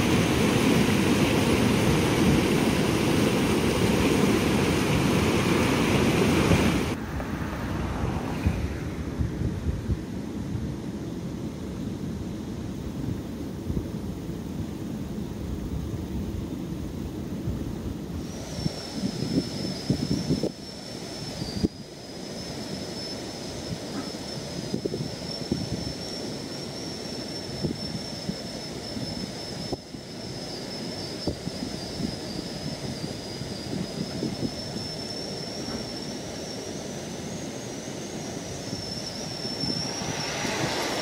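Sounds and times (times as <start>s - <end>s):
high-pitched whine: 0.0s - 12.8s, 15.0s - 41.0s
wind buffeting microphone: 0.0s - 20.7s, 23.5s - 26.0s, 31.2s - 35.0s, 38.3s - 41.0s.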